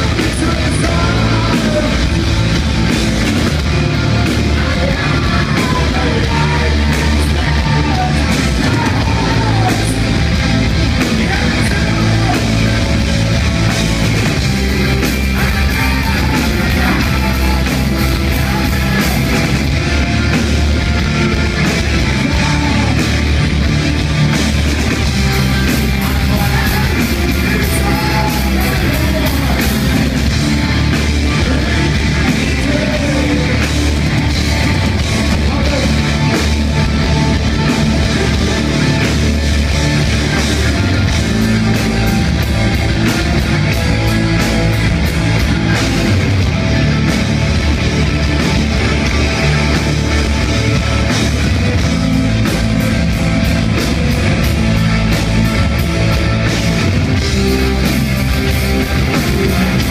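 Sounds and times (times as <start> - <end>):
bass guitar: 0.0 - 59.9
distorted electric guitar: 0.0 - 59.9
drum kit: 0.0 - 59.9
person singing: 4.4 - 10.2, 15.1 - 19.6, 25.7 - 30.3.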